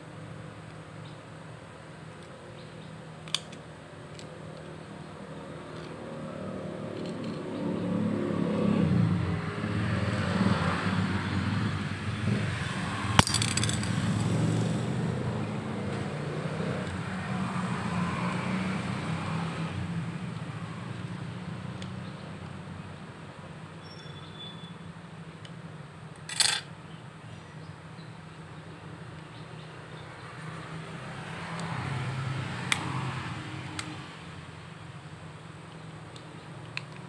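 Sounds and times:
engine running: 0:05.4 - 0:17.6.

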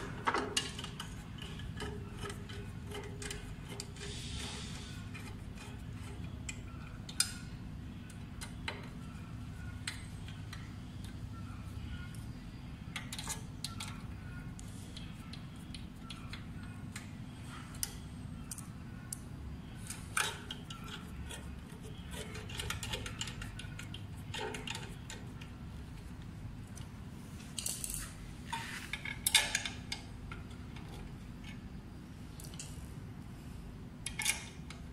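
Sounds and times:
steady low hum: 0:00.0 - 0:34.9.

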